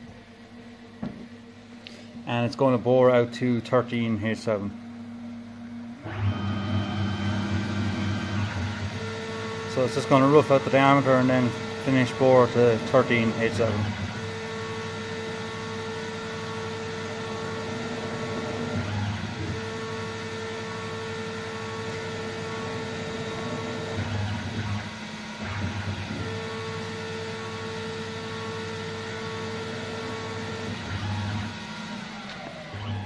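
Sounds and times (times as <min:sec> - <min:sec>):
lathe whine: 0:02.0 - 0:33.0
lathe spindle and cutting noise: 0:06.0 - 0:33.0.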